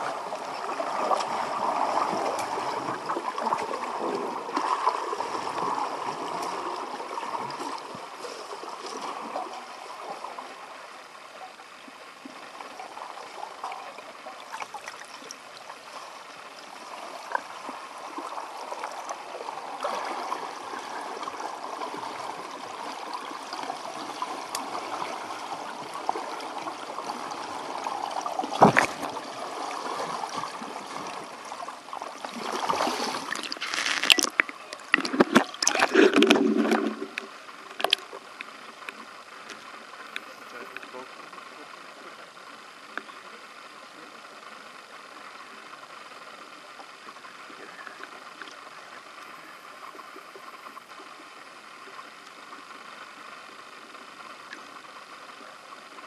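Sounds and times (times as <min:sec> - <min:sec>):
underwater pool water rushing: 0:00.0 - 0:43.0.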